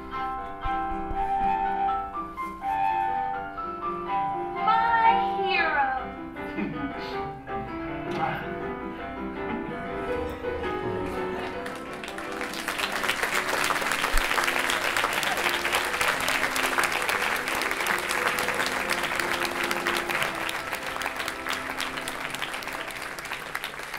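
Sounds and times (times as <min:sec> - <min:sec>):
live accompaniment music: 0:00.0 - 0:23.9
audience applauding: 0:11.1 - 0:23.9.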